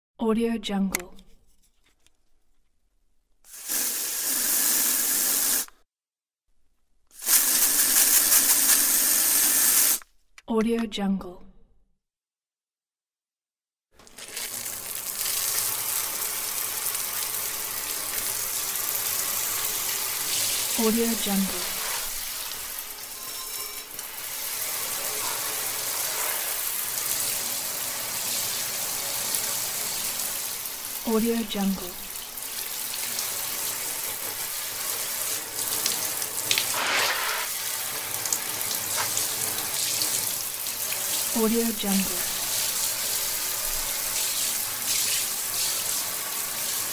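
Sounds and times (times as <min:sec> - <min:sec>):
running water gushing: 0:14.0 - 0:46.9.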